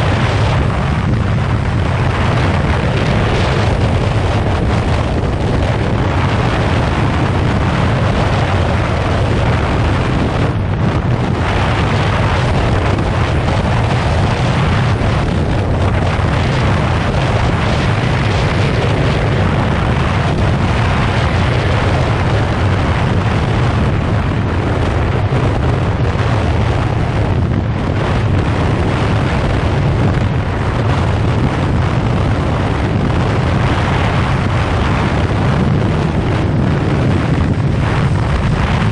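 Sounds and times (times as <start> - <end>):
wind rush on microphone: 0.0 - 38.9.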